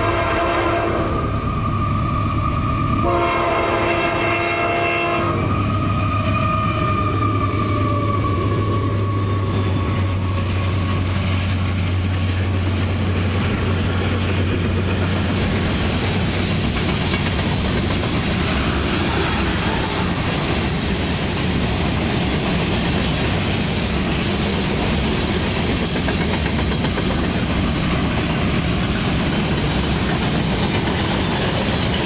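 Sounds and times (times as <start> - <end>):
locomotive horn chord: 0.0 - 1.1, 3.0 - 5.4
diesel locomotive engines running: 0.0 - 32.0
train wheel clatter: 5.4 - 32.0.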